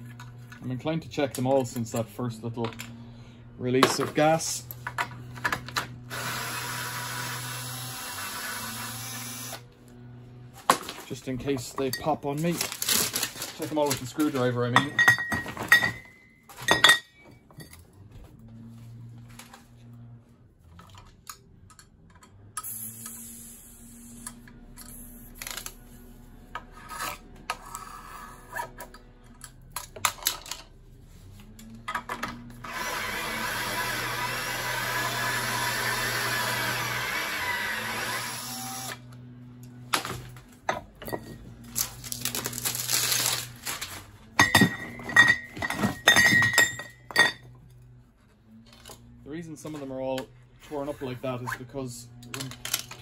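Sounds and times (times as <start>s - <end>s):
cordless drill running: 6.0s - 9.7s, 32.6s - 39.0s.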